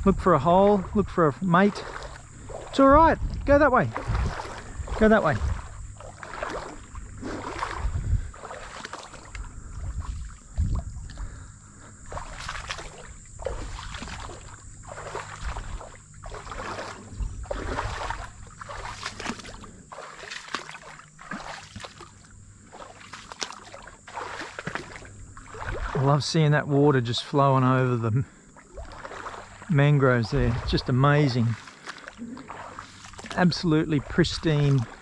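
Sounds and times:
footsteps wading through water: 0.0 - 35.0.

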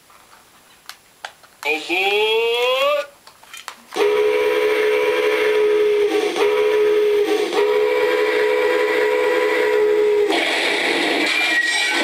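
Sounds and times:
model train horn blasts: 4.0 - 10.3.

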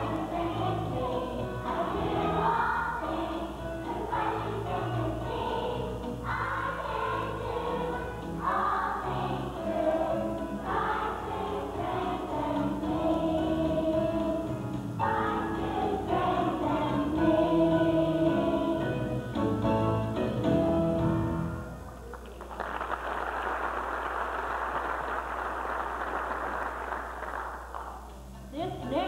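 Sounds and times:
children's choir singing: 0.0 - 19.5
low musical backing: 0.0 - 22.4, 27.6 - 29.0.

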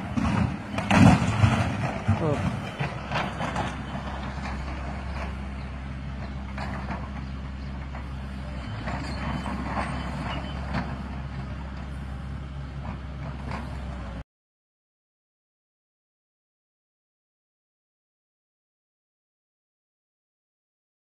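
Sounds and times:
diesel engine running: 0.0 - 14.2.

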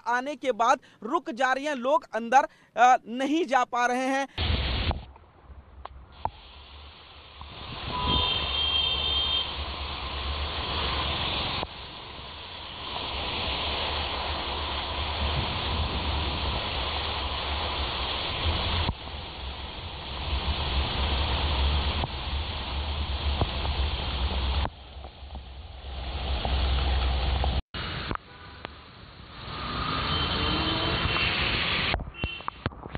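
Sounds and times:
heavy rain pouring: 6.2 - 28.0.

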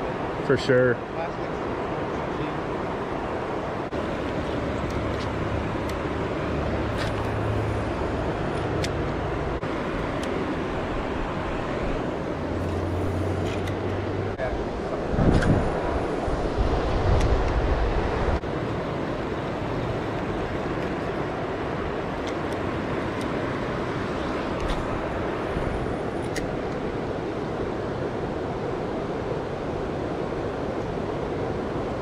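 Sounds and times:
shallow river rushing: 0.0 - 32.0
wind rumble on microphone: 10.6 - 32.0.

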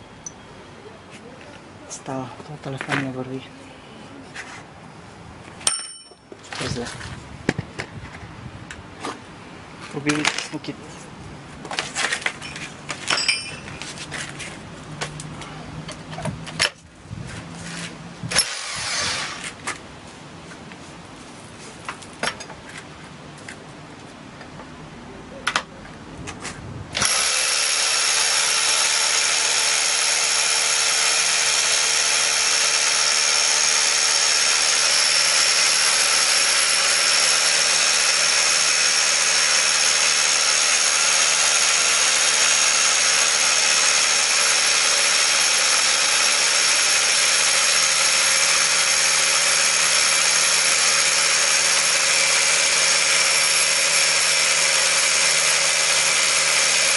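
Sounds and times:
rotary hammer drilling: 18.3 - 19.6, 27.0 - 56.9.

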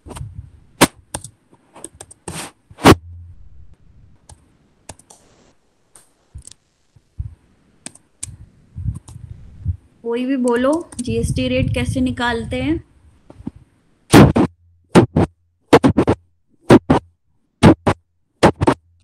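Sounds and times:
keyboard typing: 1.1 - 2.3, 7.8 - 8.4.

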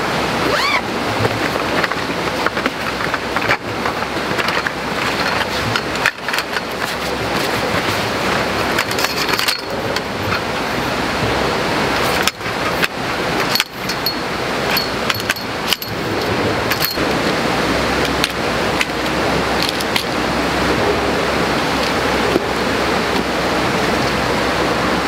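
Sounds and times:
steady rushing background noise: 0.0 - 25.0
metallic clicks of frame poles: 8.6 - 10.5, 12.1 - 17.0.

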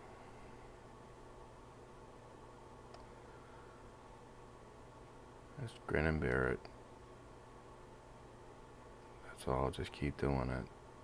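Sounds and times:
faint hum and hiss: 0.0 - 11.0
faint click: 2.9 - 3.1.

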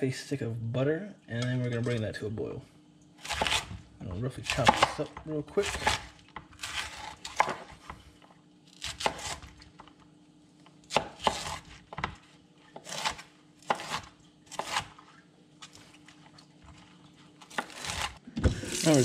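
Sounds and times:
knife chopping cauliflower: 3.2 - 3.8, 4.4 - 8.0, 8.8 - 9.6, 10.9 - 15.0, 17.4 - 19.0.

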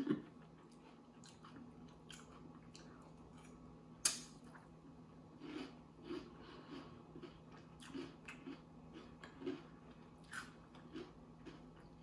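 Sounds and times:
chewing cereal: 0.0 - 3.6, 4.4 - 12.0.

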